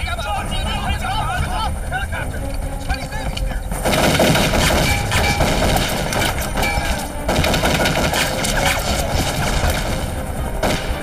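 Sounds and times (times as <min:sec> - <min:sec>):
automatic rifle fire: 0:03.8 - 0:11.0.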